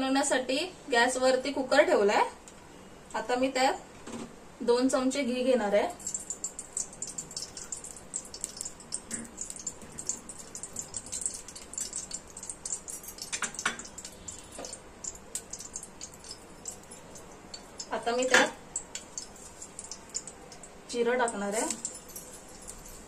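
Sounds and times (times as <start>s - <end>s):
ghee sizzling and crackling: 5.4s - 23.0s.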